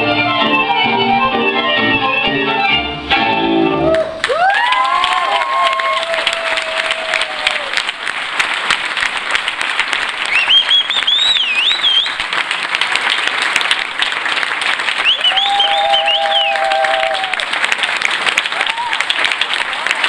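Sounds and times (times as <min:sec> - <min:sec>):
music: 0:00.0 - 0:04.2
audience applauding: 0:03.9 - 0:20.0
long high wavering whistle: 0:10.3 - 0:12.2, 0:15.0 - 0:17.0.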